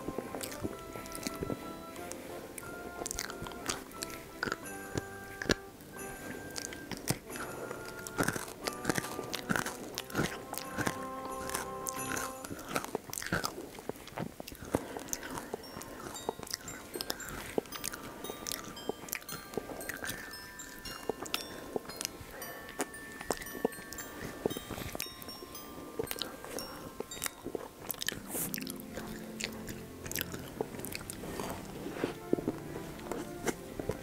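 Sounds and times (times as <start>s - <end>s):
wet chewing and lip smacks: 0.1s - 5.7s, 6.5s - 19.3s, 26.0s - 31.8s.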